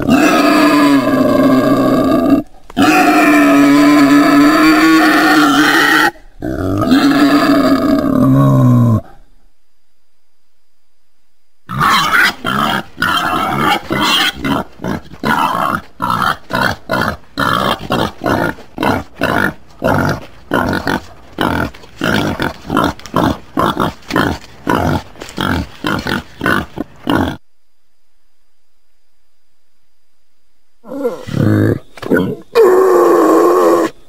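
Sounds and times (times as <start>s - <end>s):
pig grunting: 11.7s - 27.4s.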